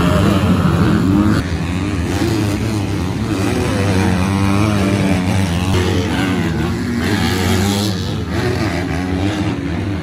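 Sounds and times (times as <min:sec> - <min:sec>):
dirt bike engines revving: 0:00.0 - 0:10.0.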